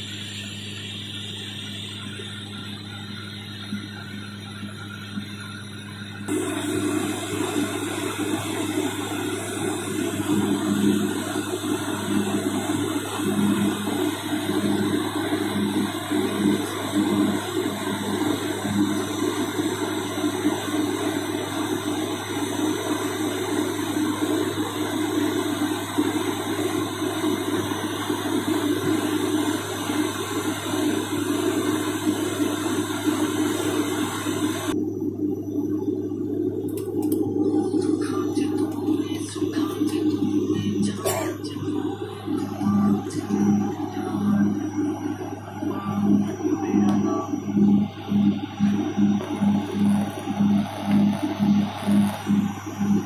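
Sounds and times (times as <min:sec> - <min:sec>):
deep steady hum: 0:00.0 - 0:53.0
engine throbbing: 0:06.1 - 0:53.0
propeller and engine rushing: 0:36.6 - 0:53.0.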